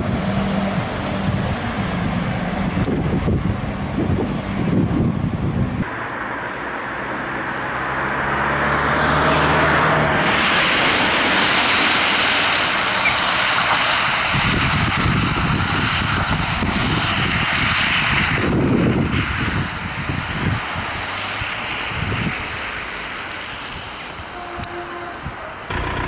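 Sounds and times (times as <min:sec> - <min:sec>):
tyres hissing on wet road: 0:00.0 - 0:05.1, 0:05.8 - 0:26.0
wind on microphone: 0:00.0 - 0:05.9, 0:10.1 - 0:22.7.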